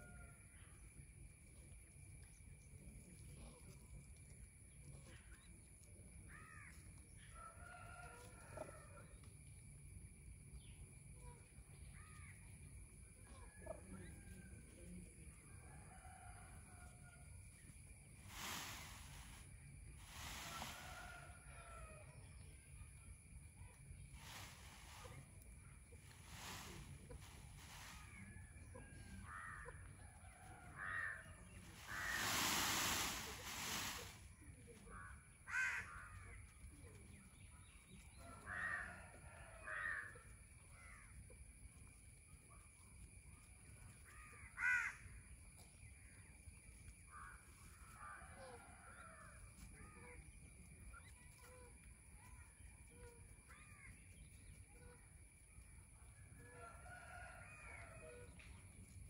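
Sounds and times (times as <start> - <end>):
rustling noise: 18.2 - 21.4, 24.1 - 28.5, 31.6 - 34.4
crows cawing: 35.5 - 36.2, 44.4 - 45.2.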